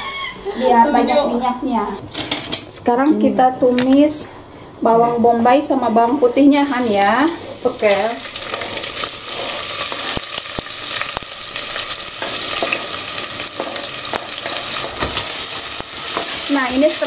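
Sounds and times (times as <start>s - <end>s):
onion sizzling in hot oil: 6.5s - 17.0s.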